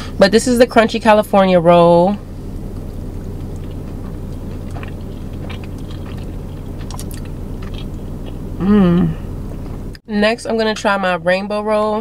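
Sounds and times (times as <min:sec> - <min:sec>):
steady low hum: 0:00.0 - 0:12.0
person chewing crunchy food: 0:02.4 - 0:09.6.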